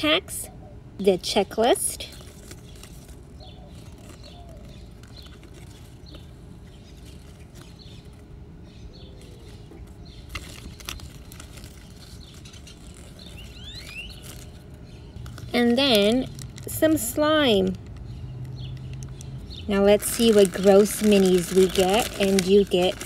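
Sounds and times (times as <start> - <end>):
paper leaflet rustling: 2.0 - 8.3, 9.1 - 18.0, 19.8 - 23.0
bird chirping: 2.1 - 16.1.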